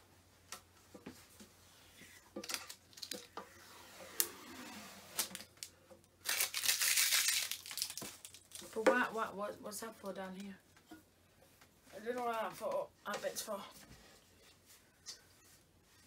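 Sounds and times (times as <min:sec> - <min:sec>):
plastic film crinkling: 0:02.4 - 0:03.3, 0:05.2 - 0:08.8
plastic film ripping peel: 0:05.1 - 0:08.7.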